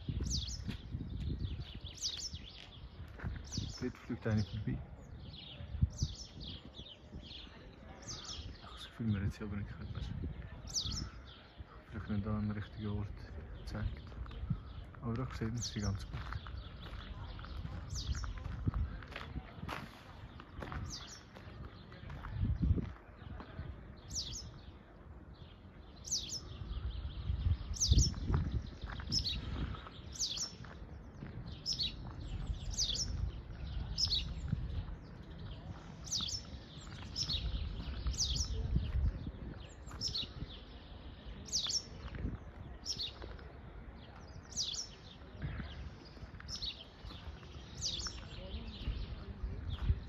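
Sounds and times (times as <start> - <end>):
songbird calling: 25.4 - 30.7, 31.5 - 38.6.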